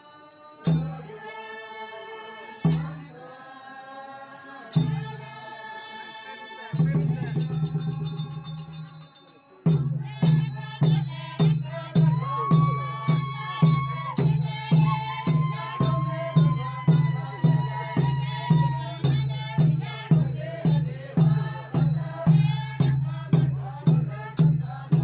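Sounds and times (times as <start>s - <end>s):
traditional dance music: 9.8s - 25.0s.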